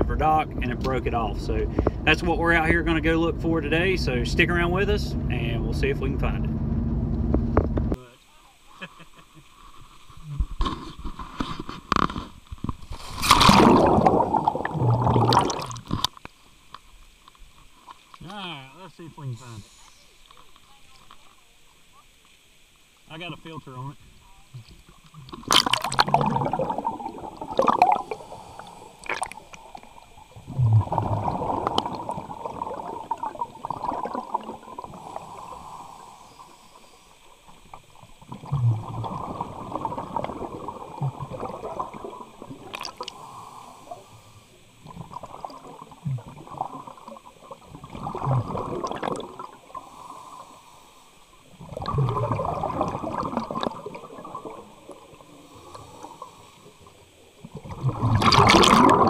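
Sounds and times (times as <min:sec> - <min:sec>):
underwater bubbles gurgling: 0:11.9 - 0:17.7, 0:24.0 - 0:59.0.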